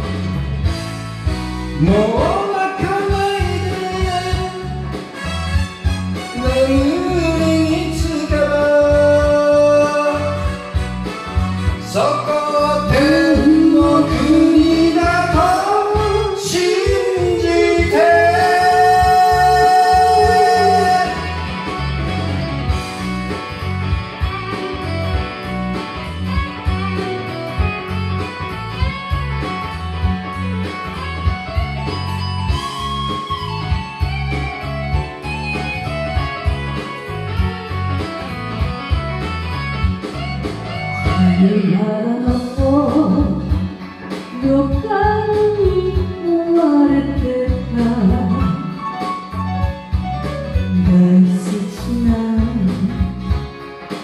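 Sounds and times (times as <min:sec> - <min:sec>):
karaoke backing track with guitar: 0:00.0 - 0:54.0
person singing: 0:01.8 - 0:04.9, 0:06.3 - 0:10.8, 0:11.8 - 0:21.8, 0:41.0 - 0:49.0, 0:50.7 - 0:53.2.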